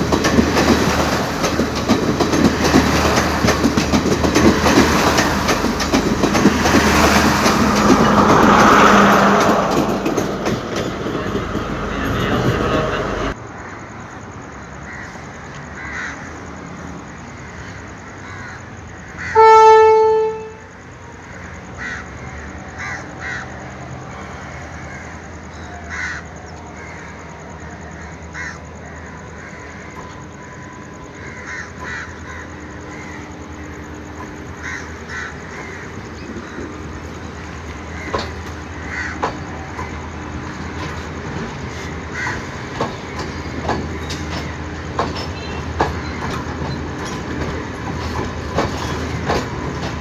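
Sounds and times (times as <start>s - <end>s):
diesel train rumble: 0.0s - 50.0s
crows cawing: 14.8s - 16.4s, 17.2s - 19.5s, 21.3s - 30.1s, 30.8s - 40.0s, 41.8s - 43.2s
train horn blast: 19.2s - 20.8s.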